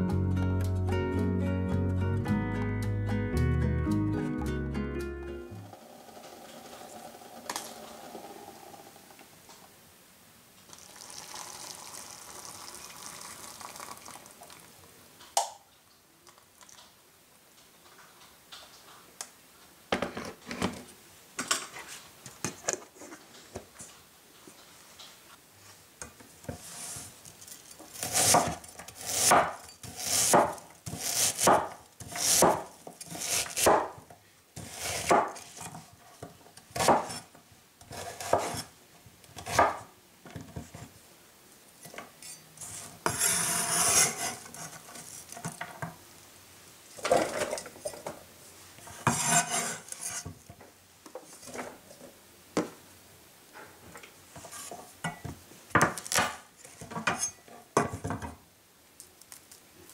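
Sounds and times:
knife slicing onion on board: 28.0 - 34.0, 34.6 - 35.6, 36.7 - 37.3, 37.9 - 38.7, 39.4 - 39.8, 43.0 - 44.8, 49.0 - 50.2
knife scraping across board: 34.6 - 35.7, 36.8 - 37.3, 37.9 - 38.7, 42.2 - 45.2, 48.8 - 50.3, 54.4 - 54.8.

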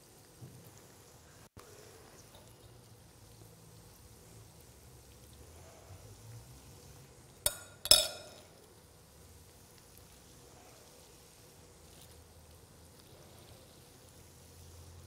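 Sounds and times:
faint steady hiss: 0.0 - 15.0
metal fork clinking on glass bowl: 7.5 - 8.5.

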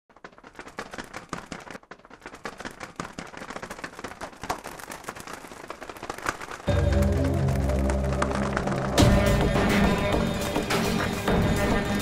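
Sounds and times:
paper and wooden sticks crackling: 0.1 - 10.2.

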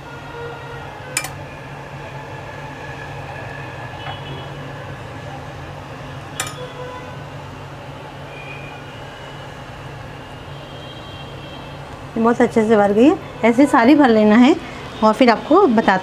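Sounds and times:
low background hum: 0.9 - 14.8
metal spoon clinking against pan: 1.2 - 1.4, 6.4 - 6.7.

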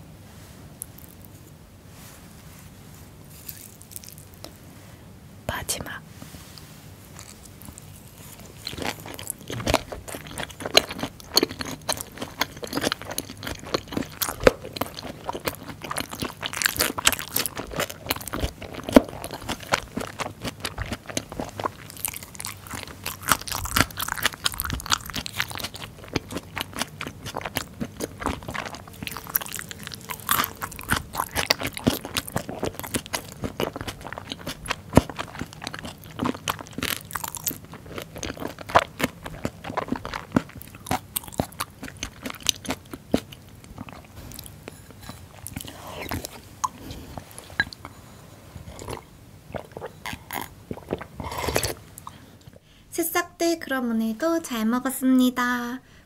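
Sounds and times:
wet crunchy chewing: 7.1 - 48.0, 48.6 - 52.3.

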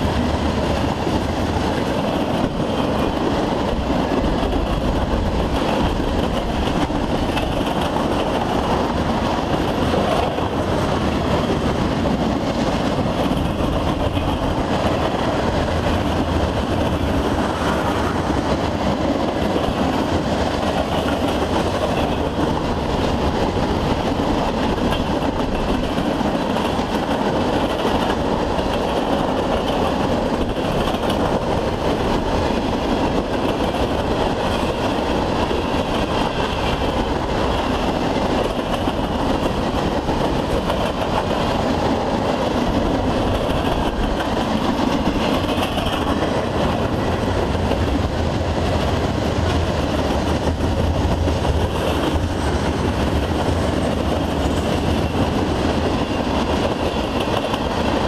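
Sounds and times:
steel wheels on rail: 0.0 - 58.0
train cars rattling: 0.0 - 58.0.

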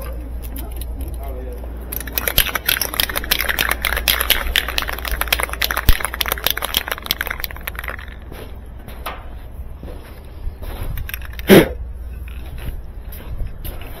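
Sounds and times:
spray can ball rattling: 1.8 - 8.4, 11.0 - 11.5.

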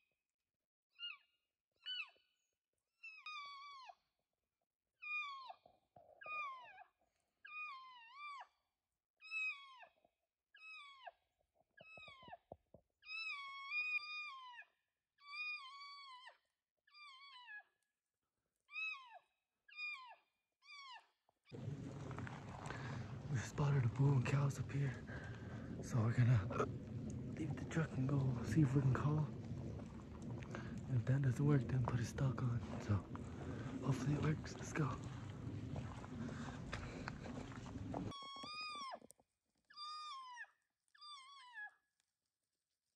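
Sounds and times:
elk mewing and chirping: 21.6 - 39.0.

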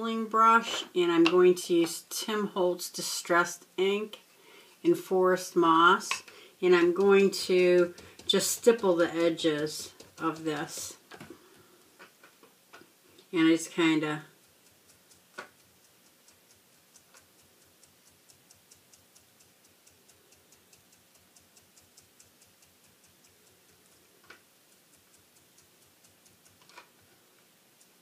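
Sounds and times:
brush tapping on card: 6.1 - 11.8.

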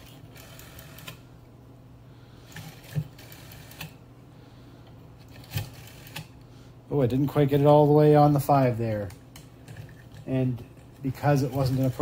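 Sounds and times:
rotary telephone dial clicks: 0.0 - 1.2, 2.6 - 4.0.

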